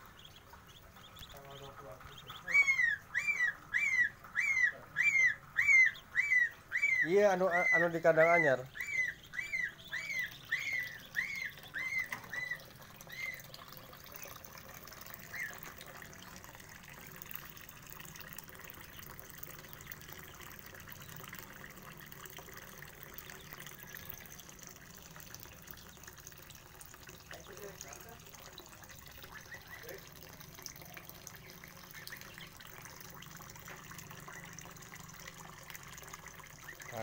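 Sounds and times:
ducklings peeping: 0.0 - 16.4, 18.7 - 20.4, 28.8 - 30.1, 31.4 - 32.8.

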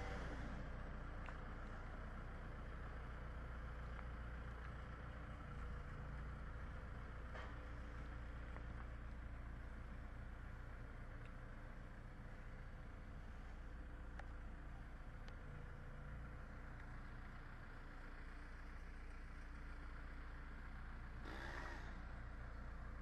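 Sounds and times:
diesel engine running: 0.0 - 23.0.

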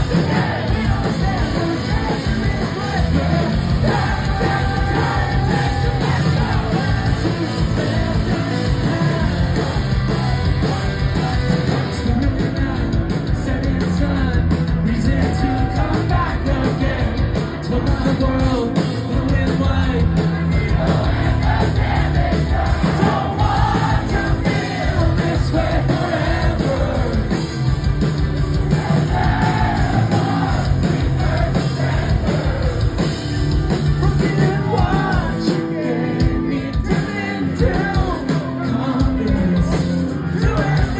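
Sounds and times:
man yelling and singing: 0.0 - 17.1, 34.0 - 40.9
rock band playing live: 0.0 - 40.9.

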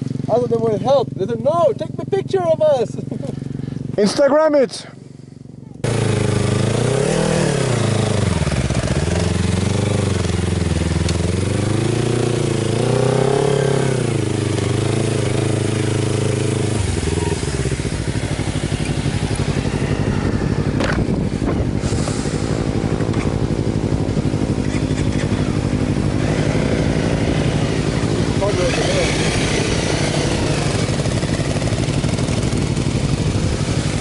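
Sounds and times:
motorcycle engine revving: 0.0 - 34.0.

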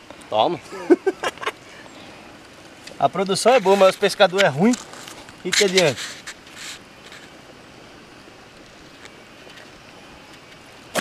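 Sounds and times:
outdoor background noise: 0.0 - 11.0
short rustle: 3.4 - 7.4.

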